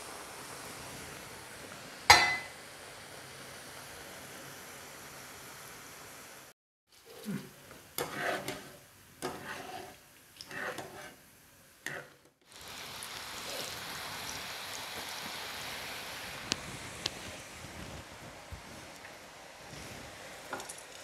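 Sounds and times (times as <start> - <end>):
hot oil deep-frying hiss: 0.0 - 21.0
metal spoon scraping a plate: 8.0 - 11.2, 11.8 - 12.2.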